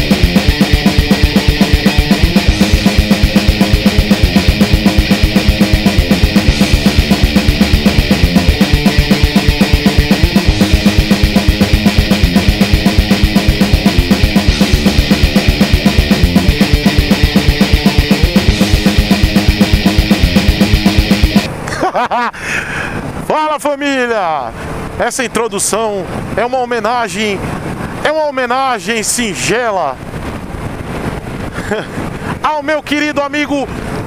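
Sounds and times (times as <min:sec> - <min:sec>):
country pop music with drum beat: 0:00.0 - 0:21.5.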